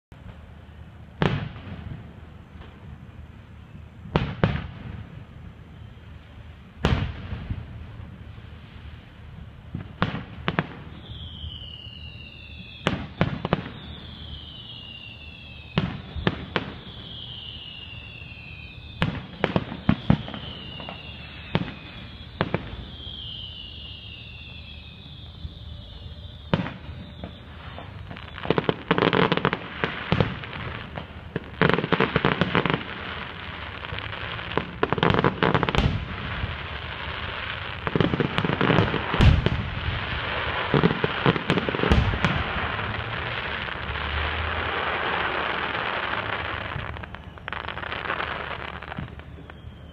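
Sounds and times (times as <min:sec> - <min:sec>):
firework crackling: 0:00.1 - 0:49.9
high falling whistles: 0:05.6 - 0:06.4, 0:10.7 - 0:30.9, 0:31.6 - 0:49.9.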